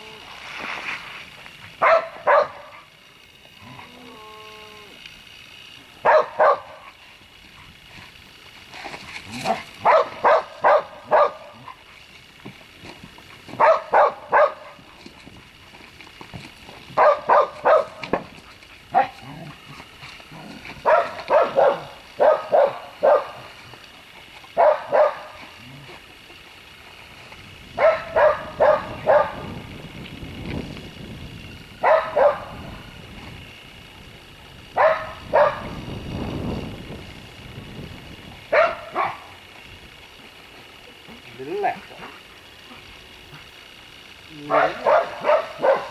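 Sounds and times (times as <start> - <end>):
dog barking: 1.8 - 2.8, 6.0 - 6.8, 9.8 - 11.6, 13.6 - 14.8, 17.0 - 18.0, 18.9 - 19.2, 20.8 - 23.4, 24.6 - 25.3, 27.8 - 29.4, 31.8 - 32.5, 34.8 - 35.7, 38.5 - 39.2, 44.5 - 45.9.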